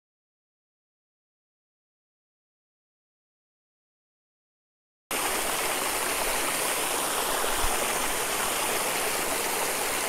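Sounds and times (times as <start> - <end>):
running water: 5.1 - 10.0.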